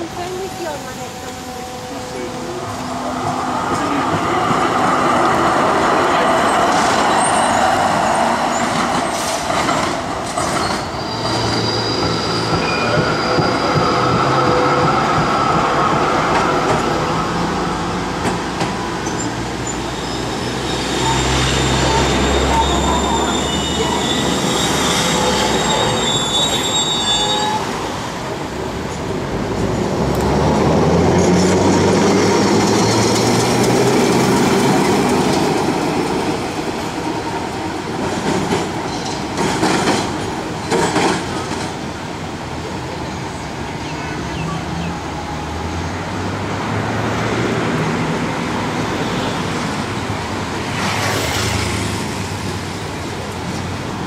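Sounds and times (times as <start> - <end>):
tram wheels rumbling on rails: 0.0 - 54.0
high wheel squeal: 0.2 - 9.5, 10.5 - 15.0, 19.0 - 28.0.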